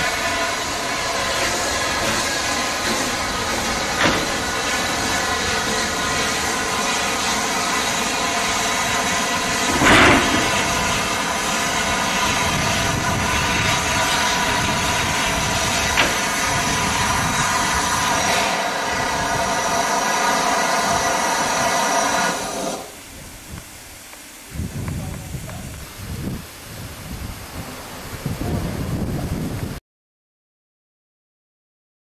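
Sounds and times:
steady hiss of steam: 0:00.0 - 0:29.8
steam locomotive moving slowly: 0:00.0 - 0:29.8.

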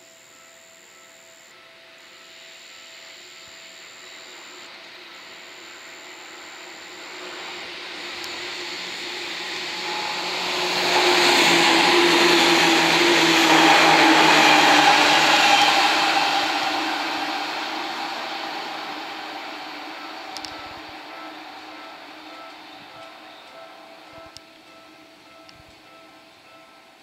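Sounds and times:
electric train passing: 0:00.0 - 0:27.0
train motor hum: 0:03.0 - 0:27.0.

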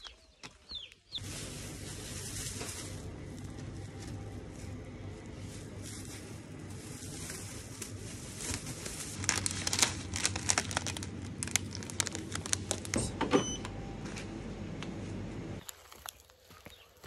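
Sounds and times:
crinkling and crackling: 0:01.1 - 0:13.2, 0:15.6 - 0:17.0
steady low hum: 0:01.2 - 0:15.6.

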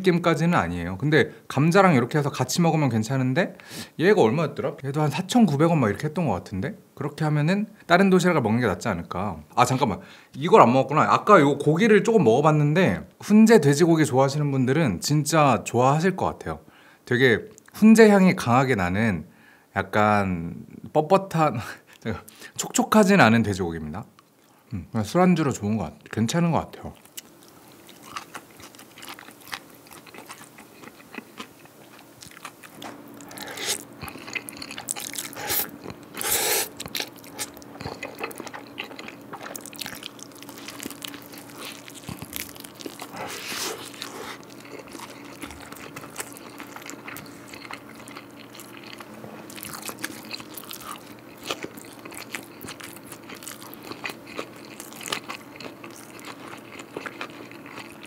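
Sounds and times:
wet chewing and lip sounds: 0:27.0 - 0:58.0
crunchy bites: 0:27.1 - 0:58.0.

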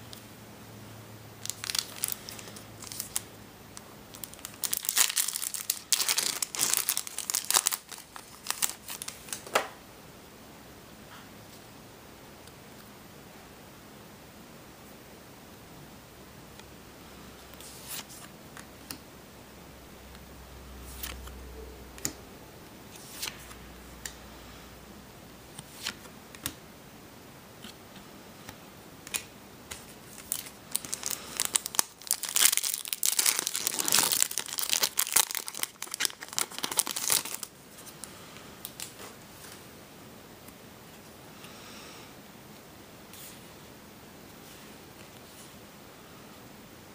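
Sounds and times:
foil wrapper crinkling and tearing: 0:01.4 - 0:03.2, 0:04.1 - 0:09.2, 0:30.2 - 0:37.5.

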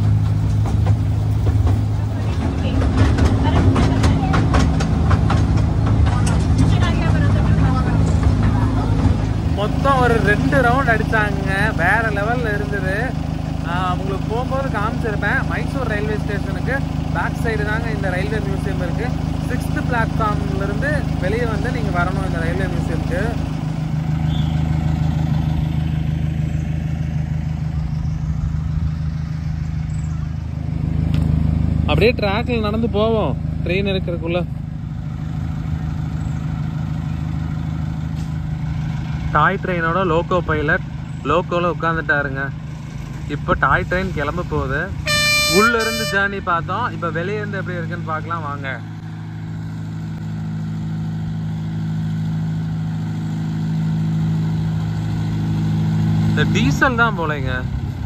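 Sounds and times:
toy train engine humming: 0:45.0 - 0:46.3.

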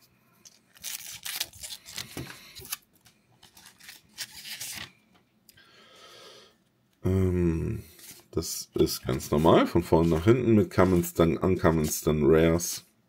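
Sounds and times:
foil wrapper crackling and ripping: 0:00.4 - 0:02.8, 0:03.4 - 0:05.0
cards rustling: 0:00.4 - 0:05.0, 0:08.9 - 0:12.1.

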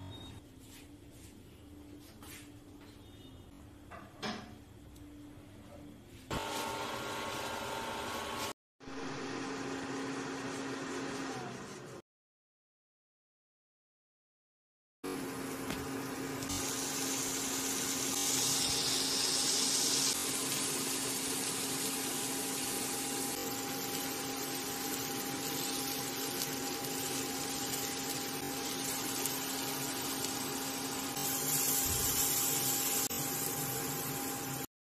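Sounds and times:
cooktop fan hum: 0:00.0 - 0:12.0, 0:15.1 - 0:34.7
fruit sizzling in butter: 0:16.4 - 0:34.7.

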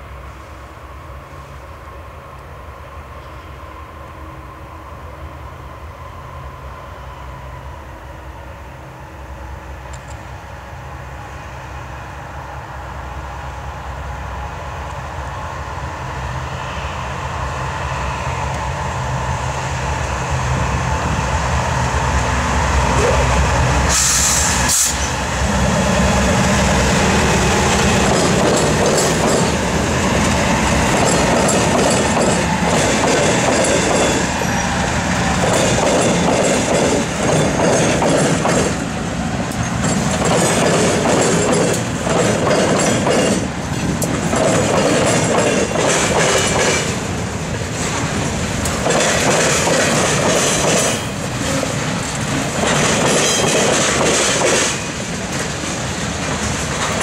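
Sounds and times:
diesel locomotive engines rumbling: 0:00.0 - 0:57.0
air brake hiss: 0:23.9 - 0:25.2
train wheels clattering over rails: 0:26.3 - 0:57.0.

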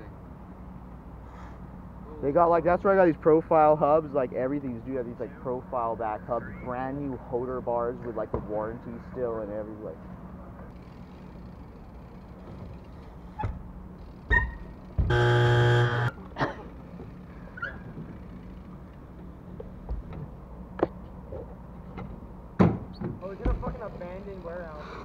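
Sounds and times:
game-show buzzer: 0:15.1 - 0:16.1.

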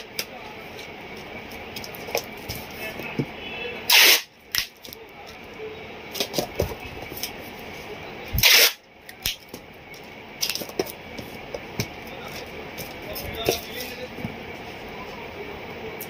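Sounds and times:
packing tape ripping off roll: 0:03.9 - 0:04.7, 0:08.4 - 0:08.8.

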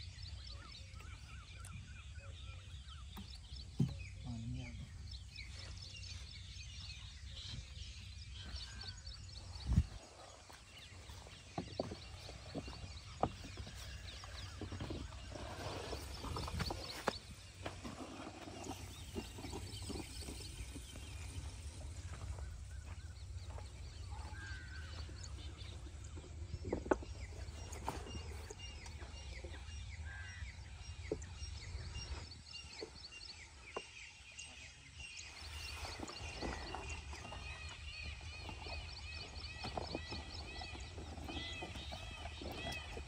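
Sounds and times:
low rumble of wind: 0:00.0 - 0:33.5
birds chirping: 0:00.0 - 0:43.0.

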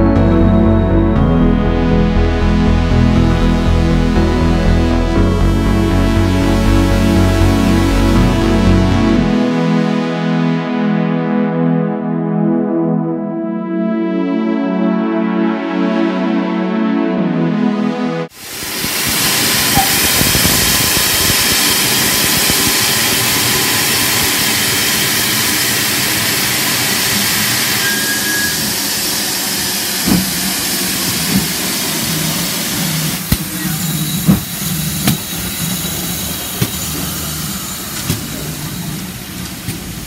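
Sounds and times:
steam hissing from safety valves: 0:18.3 - 0:40.0.

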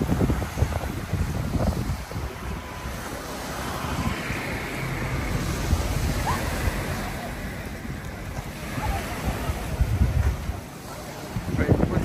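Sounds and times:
sea waves washing on shore: 0:00.0 - 0:12.0
wind buffeting microphone: 0:00.0 - 0:12.0.

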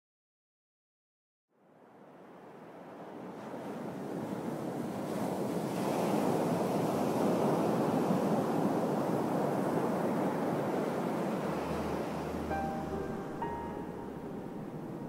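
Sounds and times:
ocean waves rushing: 0:05.3 - 0:15.0.

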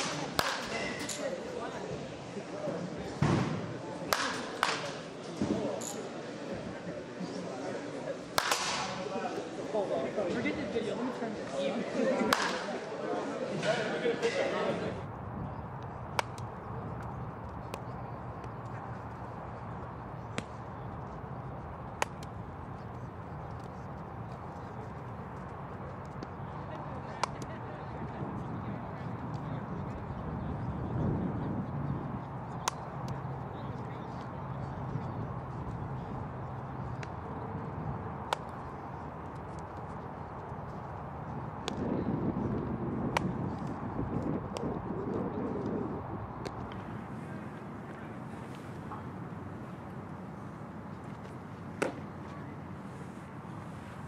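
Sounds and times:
baseball smacking into glove: 0:00.0 - 0:00.8, 0:03.2 - 0:05.0, 0:08.4 - 0:09.0, 0:12.3 - 0:12.7, 0:51.8 - 0:52.1
bat hitting ball: 0:00.0 - 0:01.2, 0:03.2 - 0:05.1, 0:08.4 - 0:09.1, 0:12.3 - 0:12.7, 0:51.8 - 0:52.1
field ambience: 0:00.0 - 0:54.0.

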